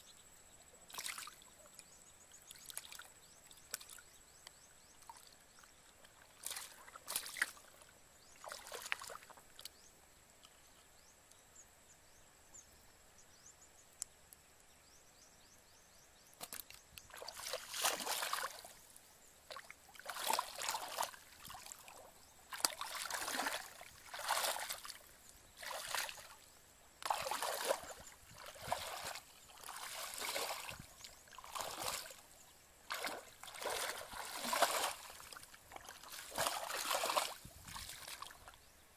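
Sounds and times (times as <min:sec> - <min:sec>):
feet wading through muddy water: 0:00.9 - 0:01.4, 0:06.2 - 0:07.8, 0:08.4 - 0:09.7, 0:16.5 - 0:18.8, 0:19.5 - 0:38.6
water splashes: 0:00.9 - 0:01.7, 0:05.0 - 0:09.7, 0:16.4 - 0:38.6.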